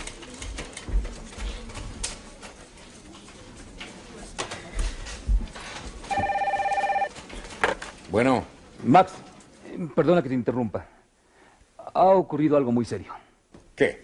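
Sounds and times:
desk telephone ringing: 0:06.1 - 0:07.1.

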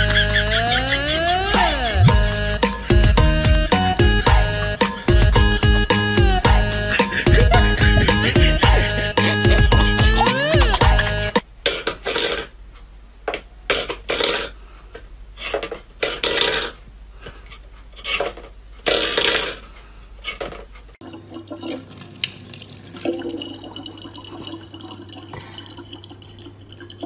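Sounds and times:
tap water running into plastic bottle: 0:21.0 - 0:27.0.

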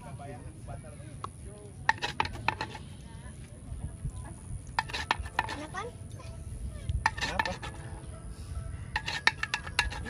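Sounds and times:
metal spoon scraping a bowl: 0:01.9 - 0:03.0, 0:04.8 - 0:05.8, 0:07.0 - 0:08.0, 0:08.9 - 0:10.0.

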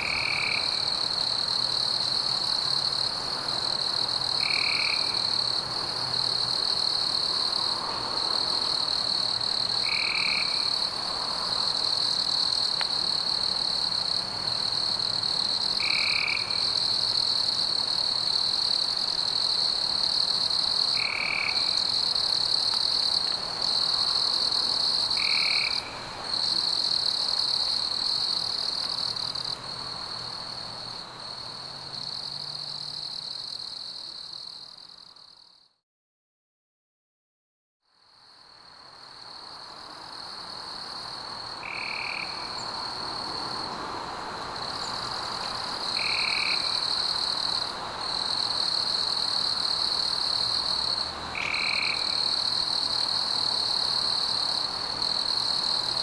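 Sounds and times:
chorus of calling frogs: 0:00.0 - 0:02.1, 0:03.8 - 0:13.6, 0:20.0 - 0:29.3, 0:41.6 - 0:43.6, 0:45.8 - 0:56.0.

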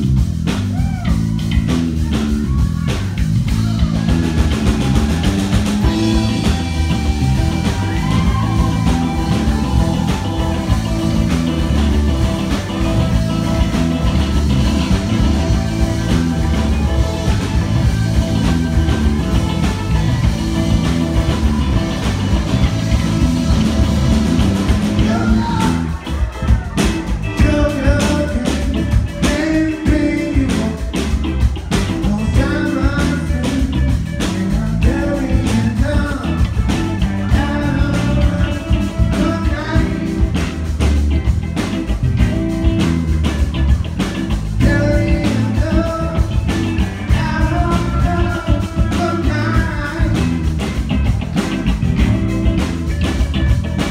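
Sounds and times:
live rock band playing: 0:00.0 - 0:53.9
lead vocal singing: 0:24.9 - 0:31.0, 0:32.0 - 0:36.5, 0:37.1 - 0:40.3, 0:44.6 - 0:50.4.

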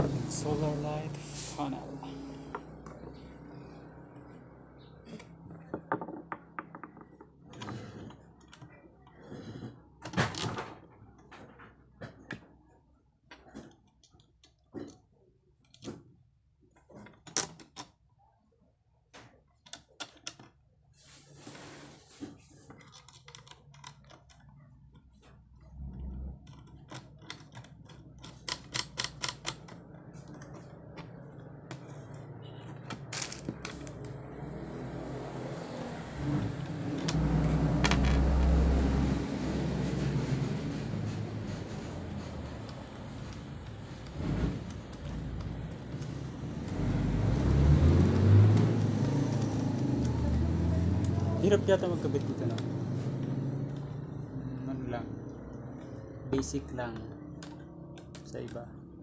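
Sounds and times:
metal parts clicking and knocking: 0:22.6 - 0:25.6, 0:26.4 - 0:34.0.

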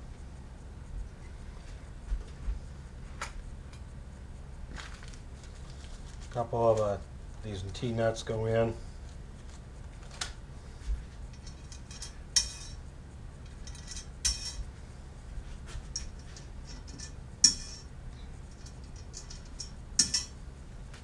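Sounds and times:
small metal hardware clinking: 0:11.3 - 0:14.7, 0:15.9 - 0:20.4.

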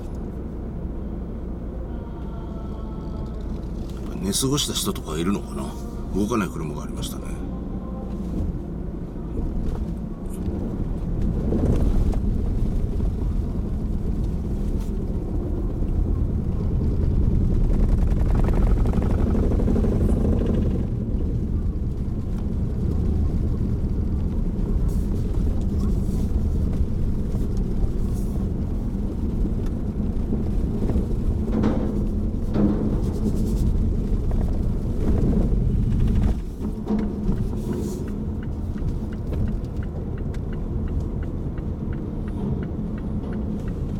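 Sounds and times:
car engine and tyres rumbling: 0:00.0 - 0:43.9.

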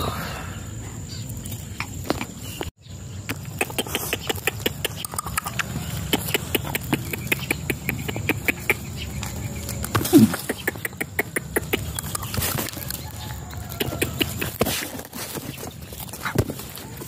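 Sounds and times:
person making sharp clicking sounds: 0:03.3 - 0:13.0, 0:13.8 - 0:14.8.

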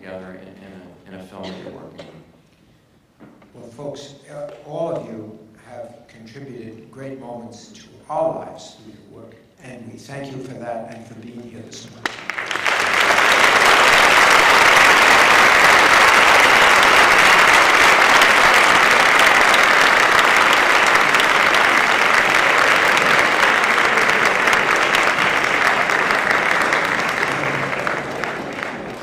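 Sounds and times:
audience applauding: 0:12.0 - 0:29.0.

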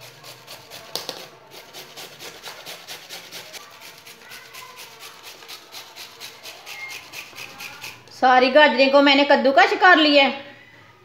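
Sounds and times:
carrot grating on a grater: 0:00.0 - 0:08.1.

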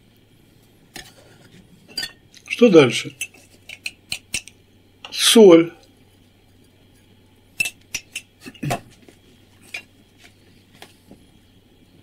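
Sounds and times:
metal spoon clinking on dishes: 0:01.9 - 0:02.5, 0:07.6 - 0:08.3.

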